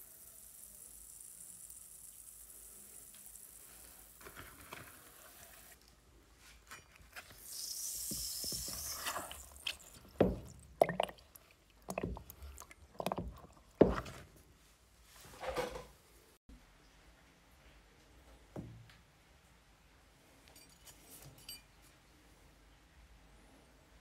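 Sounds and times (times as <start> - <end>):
water sloshing and splashing: 8.8 - 14.2.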